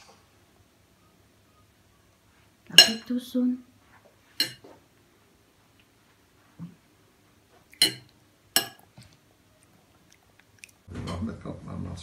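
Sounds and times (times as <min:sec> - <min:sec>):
metal spoon clinking on plate: 0:04.4 - 0:04.6, 0:07.8 - 0:08.9.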